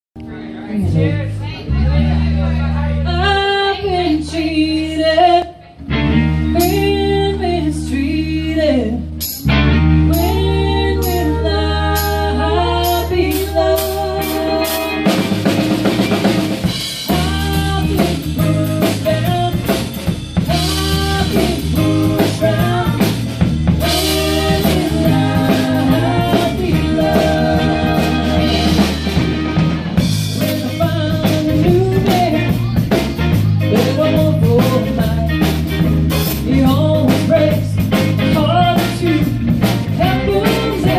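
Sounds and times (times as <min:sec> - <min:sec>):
bass: 0:00.1 - 0:40.9
guitar: 0:00.2 - 0:40.9
women singing: 0:03.1 - 0:05.8, 0:06.6 - 0:09.0, 0:10.1 - 0:15.3, 0:17.1 - 0:29.3, 0:30.4 - 0:32.7, 0:36.4 - 0:40.9
drum kit: 0:05.9 - 0:07.2, 0:09.0 - 0:40.9.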